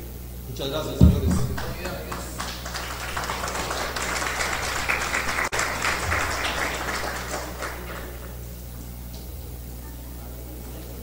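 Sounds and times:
small audience clapping: 1.0 - 8.4.

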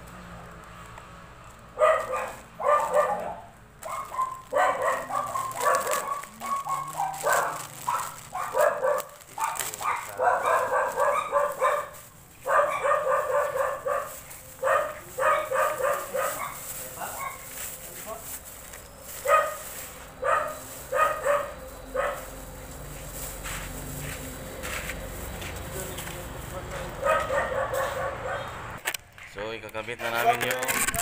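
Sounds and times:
dog barking: 1.8 - 17.6, 19.2 - 22.3, 27.0 - 28.6.

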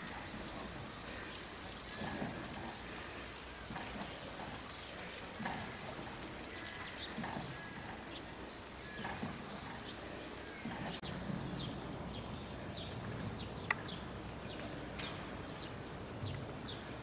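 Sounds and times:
zebra chewing grass: 0.0 - 11.0.

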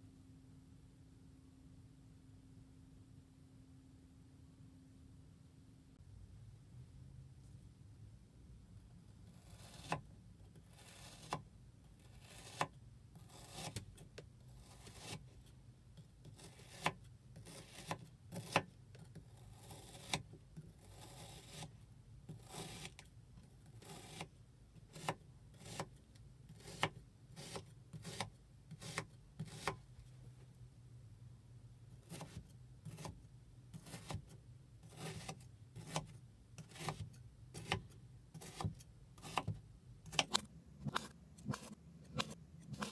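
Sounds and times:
faint scraping rasp: 9.2 - 10.0, 12.0 - 15.6, 16.2 - 30.1, 32.0 - 42.9
knife slicing kinetic sand: 9.2 - 15.4, 16.2 - 29.9, 31.9 - 42.9.

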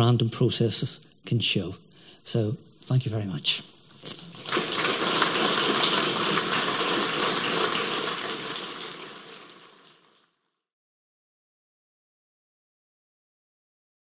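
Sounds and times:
audience applauding: 4.1 - 10.4.

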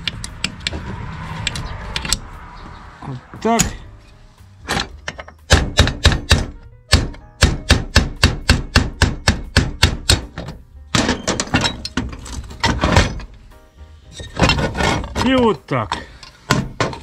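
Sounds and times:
hard knocks: 4.7 - 13.3.

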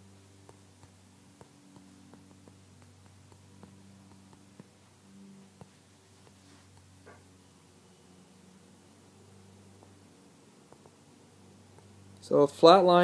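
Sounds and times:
low steady hum: 0.0 - 13.0
typing on touchscreen: 0.4 - 6.9.

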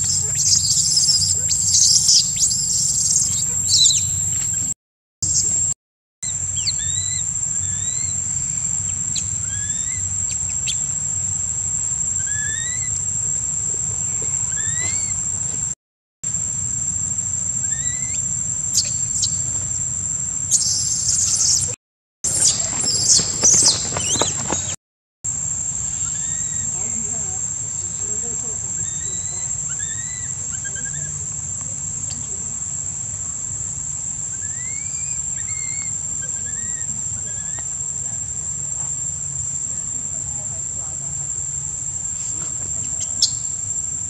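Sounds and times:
shrill high calls: 0.0 - 5.6, 20.5 - 24.8
rising bird chirps: 0.0 - 8.2, 20.5 - 24.8
high-pitched insect drone: 0.0 - 15.6, 16.3 - 24.7, 25.3 - 44.0.

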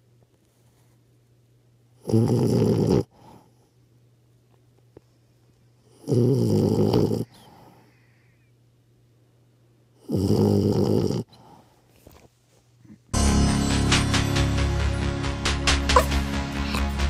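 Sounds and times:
puppy snoring: 2.0 - 3.5, 5.9 - 8.0, 10.0 - 11.6
quiet breathing: 3.0 - 4.1, 6.9 - 8.7, 11.2 - 13.1.

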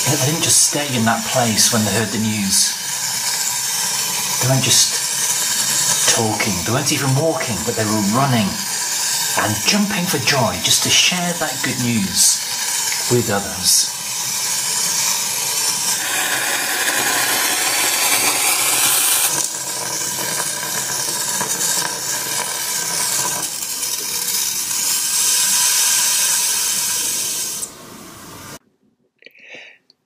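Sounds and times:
sodium fizzing in water: 0.0 - 27.8.

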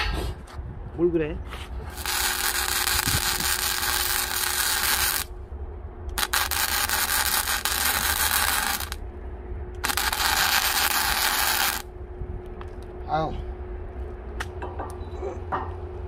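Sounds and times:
welding arc crackling and hissing: 1.9 - 5.3, 6.2 - 9.0, 9.8 - 11.9.

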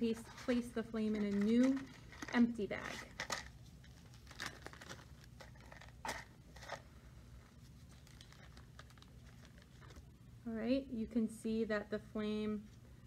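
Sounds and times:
plastic bag crinkling: 0.2 - 6.9, 7.8 - 10.1.

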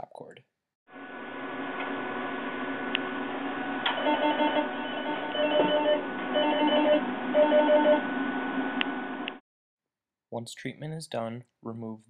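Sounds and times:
cooling fan humming: 1.0 - 9.4
electronic alarm beeps: 4.0 - 8.0.

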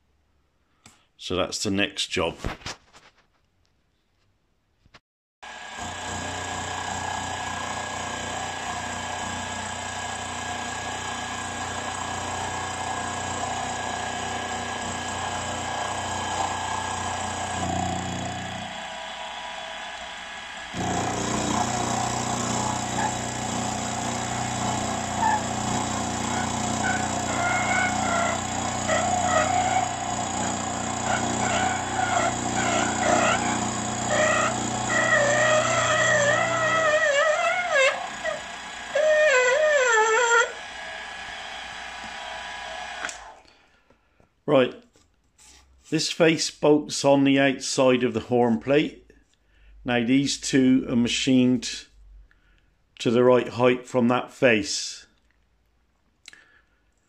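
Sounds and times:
milling machine whine: 5.5 - 43.4.

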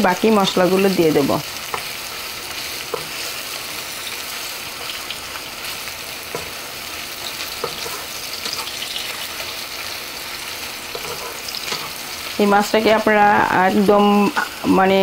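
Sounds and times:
onions sizzling in hot oil: 0.0 - 15.0
spatula stirring: 1.6 - 9.9, 10.7 - 12.1.

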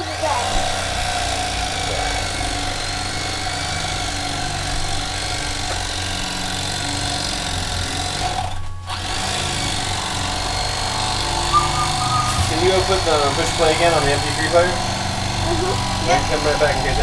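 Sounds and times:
electric carving knife sawing: 0.1 - 10.6.

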